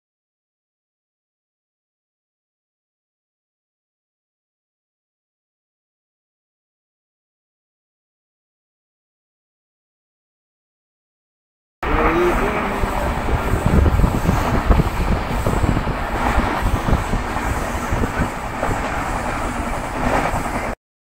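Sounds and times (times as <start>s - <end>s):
vehicle rumble and wind noise: 11.8s - 20.8s.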